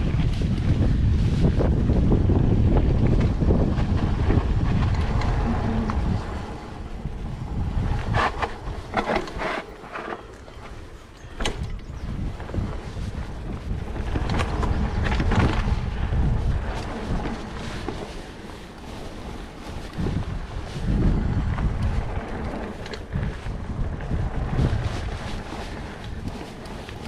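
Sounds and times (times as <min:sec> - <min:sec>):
mountain bike rolling on dirt: 0:00.0 - 0:27.0
wind buffeting microphone: 0:00.0 - 0:27.0
sharp bike clatters: 0:07.0 - 0:27.0.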